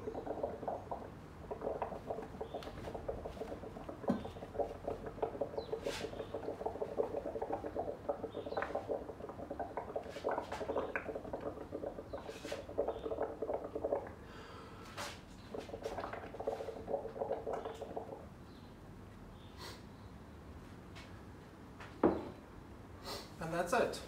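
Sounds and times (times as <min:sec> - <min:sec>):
small bubble pops: 0:00.0 - 0:14.2, 0:15.0 - 0:18.3
bubbling through a straw: 0:00.0 - 0:18.4.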